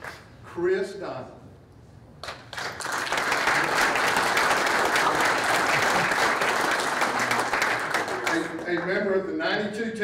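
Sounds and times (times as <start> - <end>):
audience applauding: 2.2 - 9.0.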